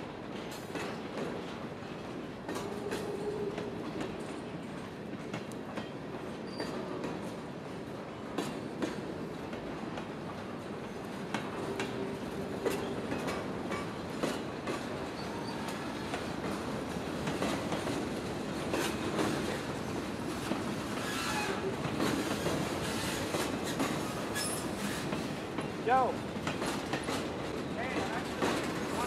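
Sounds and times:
train wheels clicking over rail joints: 0.4s - 7.4s, 8.3s - 29.0s
train wheel squeals: 6.3s - 7.1s, 15.1s - 15.9s, 20.9s - 25.3s.

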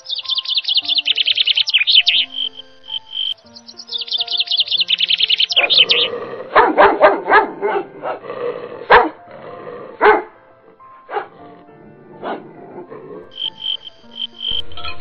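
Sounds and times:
rapid high chirping: 0.0s - 6.2s, 13.3s - 15.0s
dog barking: 5.5s - 8.2s, 8.8s - 9.2s, 10.0s - 10.4s, 11.0s - 13.3s.

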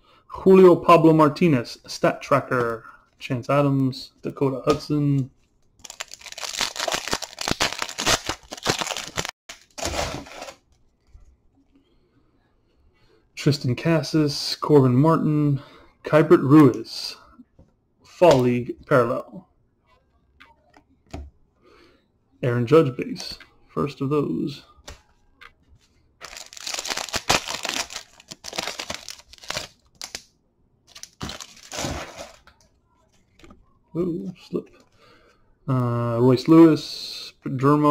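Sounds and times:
foil wrapper crinkling and tearing: 5.8s - 10.6s, 26.2s - 30.3s, 30.9s - 32.4s.

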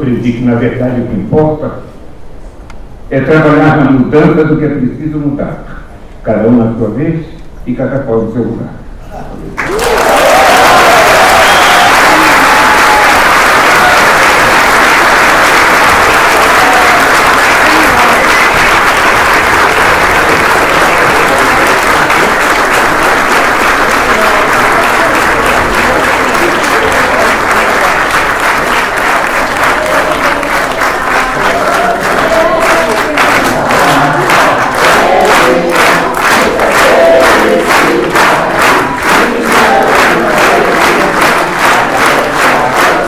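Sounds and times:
audience applauding: 9.6s - 43.0s.

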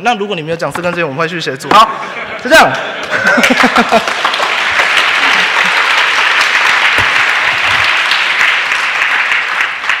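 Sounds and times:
audience applauding: 2.7s - 10.0s.

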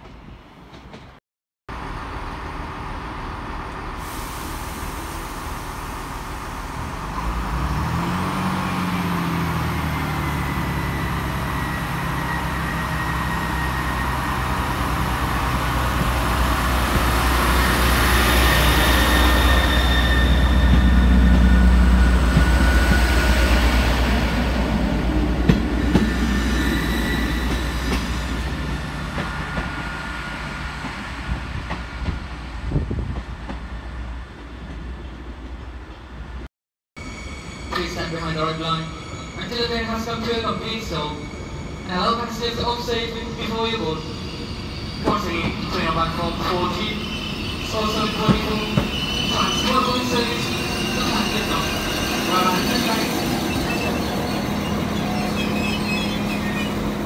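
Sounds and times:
diesel train engine revving: 1.7s - 32.7s.

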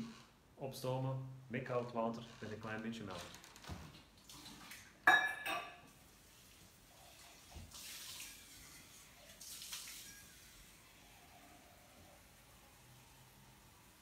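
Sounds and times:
tap water running into a sink: 6.2s - 10.8s.

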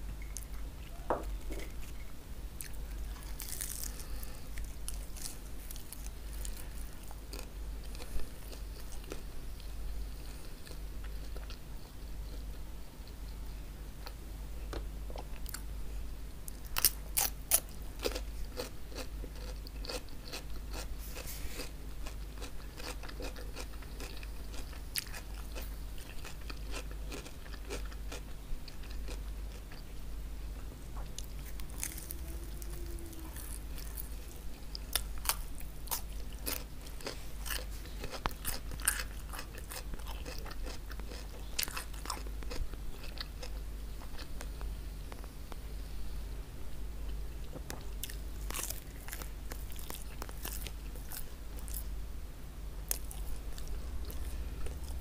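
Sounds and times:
crisp bread crunching: 2.6s - 9.2s, 16.6s - 29.2s, 31.2s - 43.6s, 48.0s - 51.9s
chewing: 16.5s - 29.9s, 31.0s - 44.3s, 47.5s - 51.9s, 52.9s - 55.0s.

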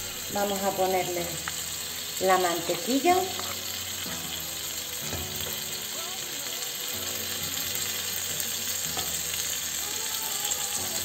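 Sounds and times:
food sizzling in oil: 0.0s - 11.0s.

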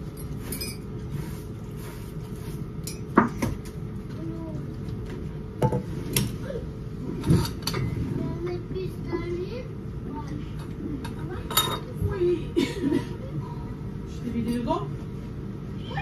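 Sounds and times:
steady low hum: 0.0s - 16.0s
dishes and cutlery clinking: 0.2s - 0.9s, 2.8s - 3.6s, 10.6s - 12.0s.

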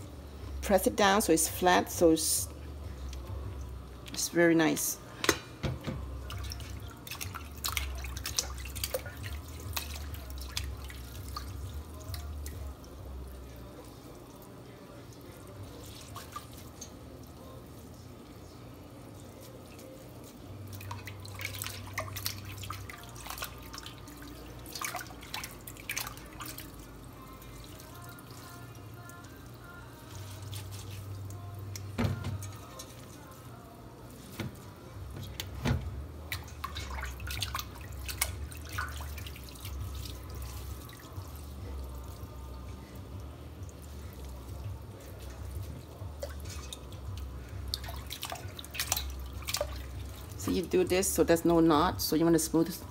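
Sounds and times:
small wet clicks and splashes: 3.0s - 4.2s, 6.2s - 17.4s, 19.4s - 33.3s, 35.1s - 42.4s, 43.0s - 50.8s
water dripping from noodles: 6.2s - 18.4s, 19.5s - 33.5s, 35.3s - 50.8s.

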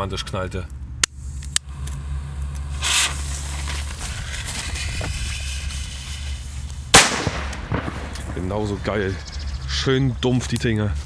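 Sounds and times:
fuse hissing: 1.2s - 9.1s
loud dull bang: 7.0s - 8.7s.

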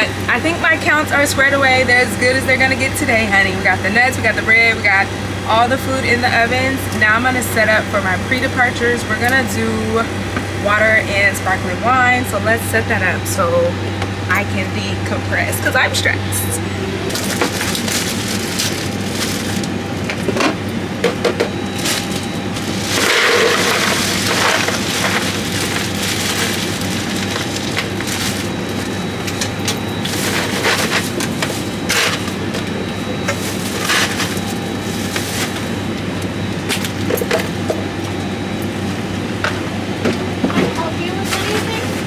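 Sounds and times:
steady low hum: 0.0s - 42.0s
plastic bags crinkling: 17.1s - 19.8s, 21.8s - 28.9s.

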